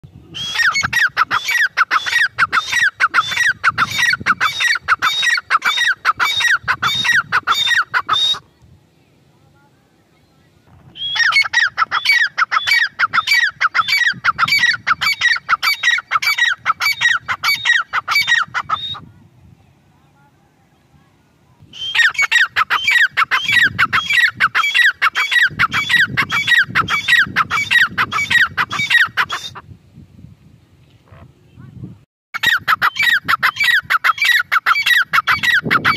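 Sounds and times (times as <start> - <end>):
francolin calling loudly: 0.3 - 8.5, 11.0 - 19.1, 21.7 - 29.6, 32.4 - 35.9.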